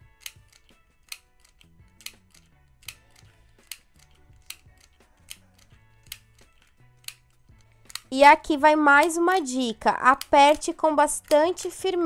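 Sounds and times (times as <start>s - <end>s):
mini sewing machine clicking: 9.0s - 12.0s.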